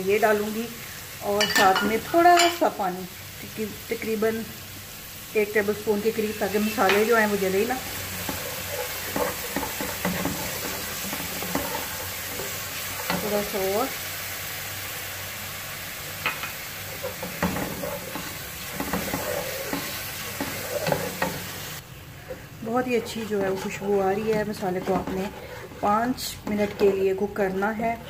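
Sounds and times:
spices sizzling in hot oil: 0:00.0 - 0:28.0
spoon tapping pan: 0:01.4 - 0:02.6, 0:08.2 - 0:13.4, 0:16.2 - 0:21.5
spoon stirring and scraping: 0:06.8 - 0:13.8, 0:16.2 - 0:21.7, 0:22.3 - 0:27.3.

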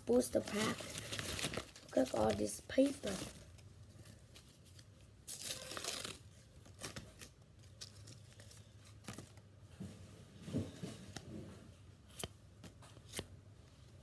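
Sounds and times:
wrapper crinkling: 0:00.0 - 0:09.4
wrapper tearing: 0:00.3 - 0:09.3.

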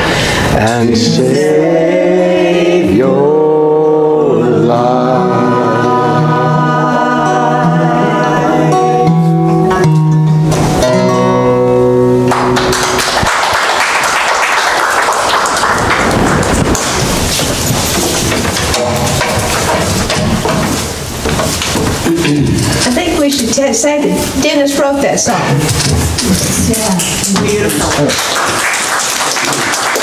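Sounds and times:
choir singing with accompaniment: 0:00.1 - 0:09.8
audience applause: 0:12.2 - 0:20.1, 0:27.2 - 0:30.0.

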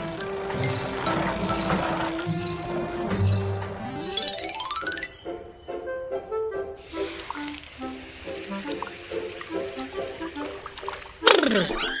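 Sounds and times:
cartoon background music: 0:00.0 - 0:12.0
hiss: 0:06.8 - 0:10.0.

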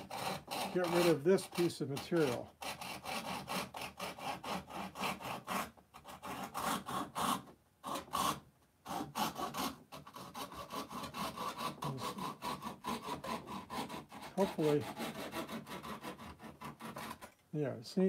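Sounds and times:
hand saw cutting wood: 0:00.0 - 0:17.4.

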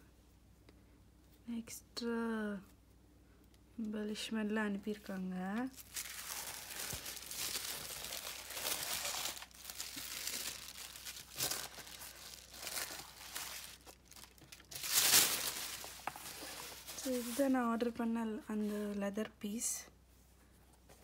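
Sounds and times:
packaging crinkling and rustling: 0:05.5 - 0:17.9.

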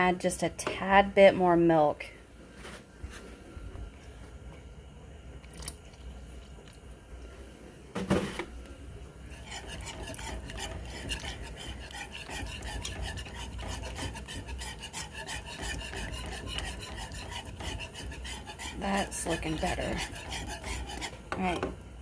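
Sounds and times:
whisk scraping metal skillet: 0:09.3 - 0:21.5.

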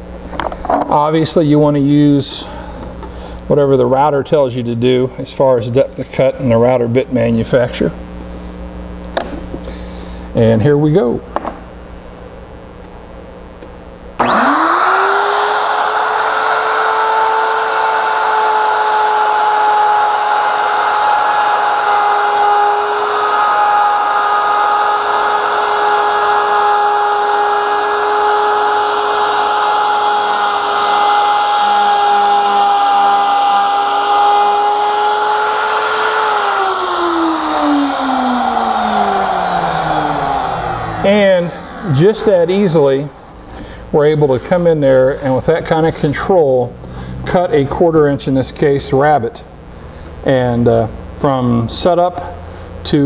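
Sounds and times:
router motor whining: 0:14.2 - 0:43.4.

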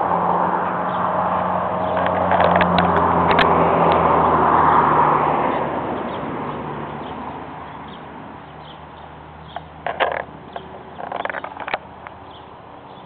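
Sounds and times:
rushing road noise: 0:00.0 - 0:13.0
vehicle engine hum: 0:00.0 - 0:13.0
sharp clicks: 0:01.9 - 0:04.0, 0:09.5 - 0:12.2.

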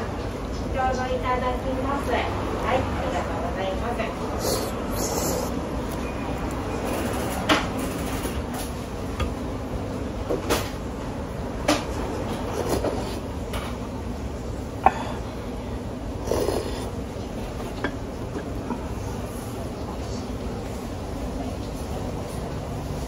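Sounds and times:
low background hum: 0:00.0 - 0:23.0.

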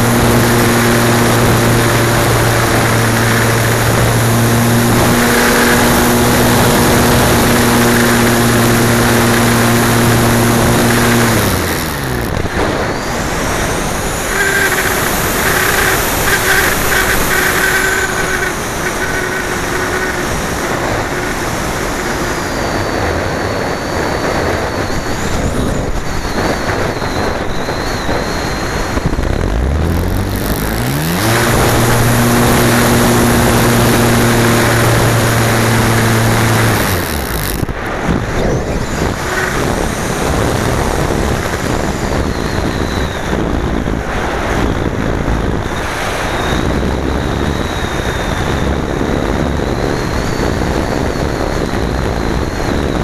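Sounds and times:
steady low hum: 0:00.0 - 0:42.0
wind rushing over camera: 0:00.0 - 0:53.0.

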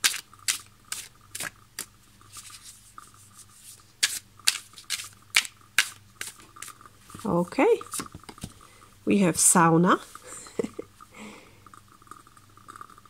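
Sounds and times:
cards being shuffled: 0:00.0 - 0:08.6.

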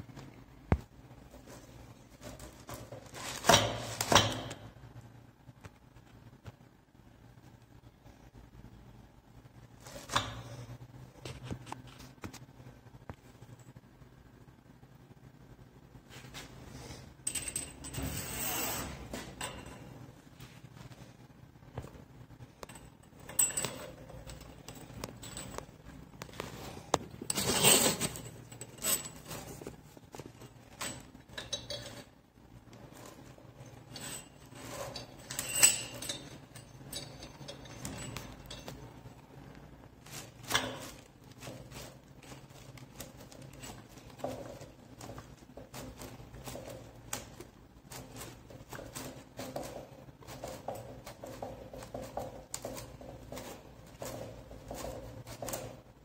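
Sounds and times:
metal hoses clicking and rattling: 0:01.4 - 0:04.8, 0:17.2 - 0:20.0, 0:22.4 - 0:56.0.

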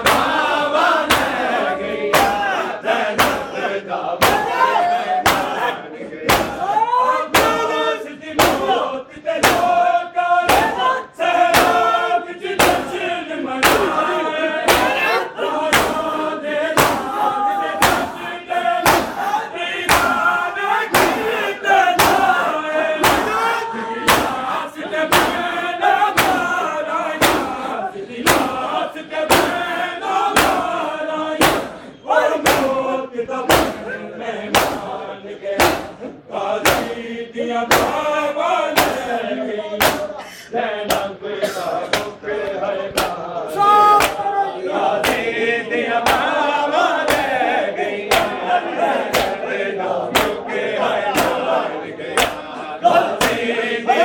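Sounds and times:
hands slapping chests: 0:00.0 - 0:01.5, 0:02.1 - 0:02.5, 0:03.2 - 0:03.5, 0:04.2 - 0:05.7, 0:06.3 - 0:06.7, 0:08.4 - 0:08.8, 0:09.4 - 0:09.8, 0:11.5 - 0:11.9, 0:12.6 - 0:12.9, 0:13.6 - 0:14.0, 0:14.6 - 0:15.0, 0:15.7 - 0:16.1, 0:16.7 - 0:17.2, 0:17.8 - 0:18.2, 0:18.8 - 0:19.2, 0:19.9 - 0:20.3, 0:20.9 - 0:21.3, 0:22.0 - 0:22.4, 0:23.0 - 0:24.5, 0:25.1 - 0:25.5, 0:26.1 - 0:26.6, 0:27.2 - 0:27.6, 0:28.2 - 0:28.6, 0:30.4 - 0:30.8, 0:31.4 - 0:32.8, 0:33.5 - 0:33.9, 0:34.5 - 0:34.9, 0:35.6 - 0:37.0, 0:37.7 - 0:38.1, 0:38.8 - 0:39.1, 0:39.8 - 0:40.2, 0:41.9 - 0:43.2, 0:43.8 - 0:44.3, 0:45.0 - 0:45.3, 0:46.0 - 0:46.4, 0:47.0 - 0:47.4, 0:48.1 - 0:48.4, 0:49.0 - 0:49.4, 0:50.1 - 0:50.4, 0:51.1 - 0:51.5, 0:52.1 - 0:52.5, 0:53.2 - 0:53.4
men chanting in unison: 0:00.0 - 0:54.0.

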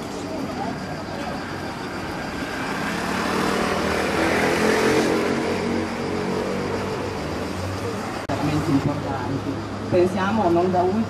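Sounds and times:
vehicle engine passing by: 0:02.3 - 0:08.9.

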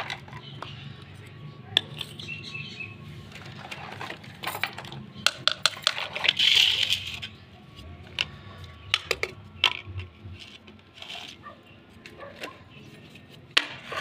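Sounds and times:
plastic toys clattering on stone: 0:00.0 - 0:01.2, 0:01.8 - 0:02.4, 0:03.2 - 0:07.4, 0:08.0 - 0:12.9.

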